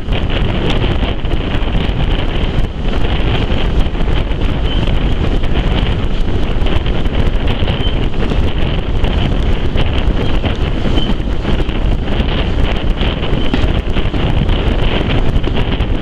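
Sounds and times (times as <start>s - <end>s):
train coaches rumbling on track: 0.0s - 16.0s
wind buffeting microphone: 0.0s - 16.0s.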